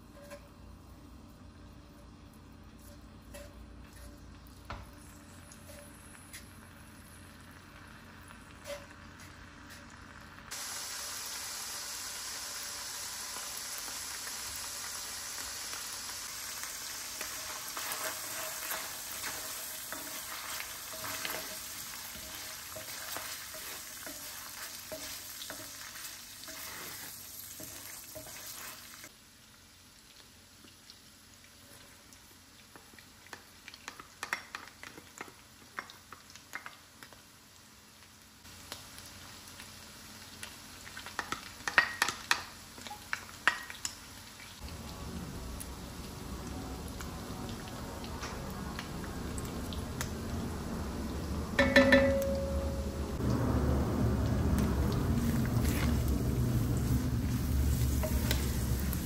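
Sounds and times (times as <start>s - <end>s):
meat sizzling in a pan: 5.0s - 44.7s, 53.8s - 59.0s.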